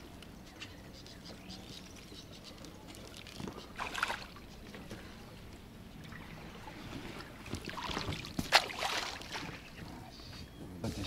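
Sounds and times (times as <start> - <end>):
water splashing and dripping: 2.6 - 4.8, 6.0 - 9.7.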